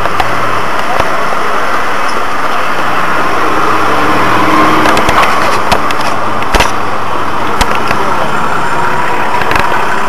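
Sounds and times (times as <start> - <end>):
road noise: 0.0 - 10.0
sharp cracks and knocks: 4.8 - 6.8.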